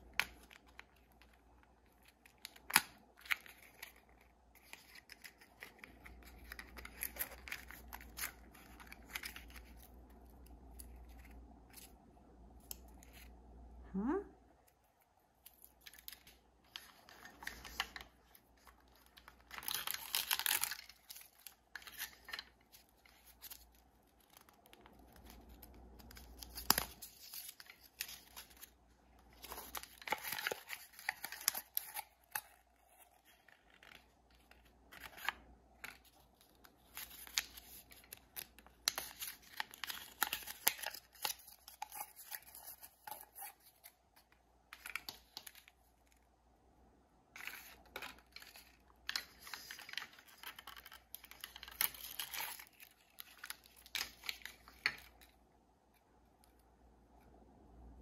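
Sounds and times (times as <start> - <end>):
packaging ripping and crinkling: 15.5 - 43.9, 47.4 - 55.3.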